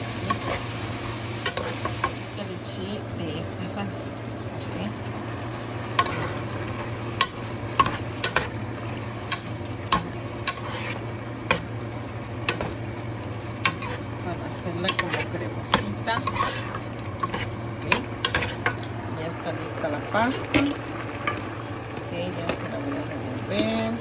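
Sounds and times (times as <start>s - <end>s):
low sizzle: 0.0s - 24.0s
steady hum: 0.0s - 24.0s
spoon scraping pot: 9.3s - 11.7s, 13.6s - 14.1s, 14.9s - 18.8s.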